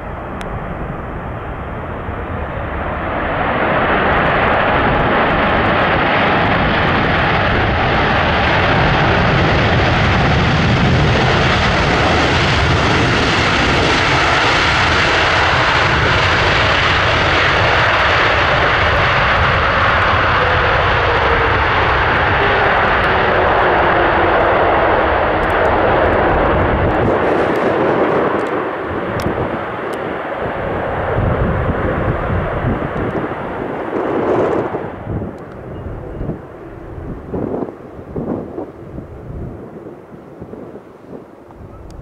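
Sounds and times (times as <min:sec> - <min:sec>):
jet engine whine falling: 0:00.0 - 0:42.0
jet engines roaring: 0:00.0 - 0:42.0.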